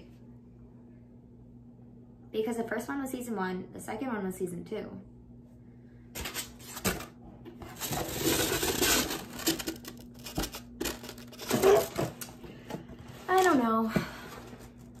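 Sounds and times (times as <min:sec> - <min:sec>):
packing material crinkling: 0:07.7 - 0:12.3.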